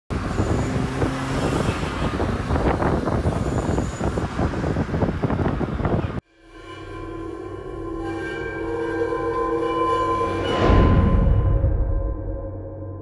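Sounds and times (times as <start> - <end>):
car engine and exhaust at speed: 0.1 - 6.2
road and wind noise: 0.1 - 6.2.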